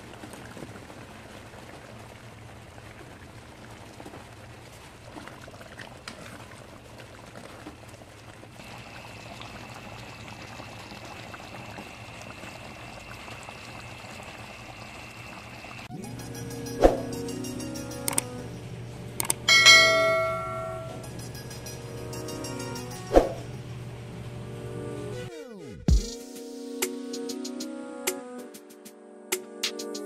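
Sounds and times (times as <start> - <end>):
stew simmering and bubbling: 0.0 - 15.9.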